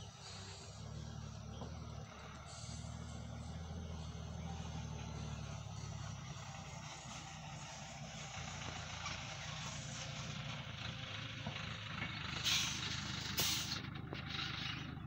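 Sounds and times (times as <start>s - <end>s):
truck engine rumbling: 0.0s - 15.0s
short loud hisses: 13.4s - 13.8s.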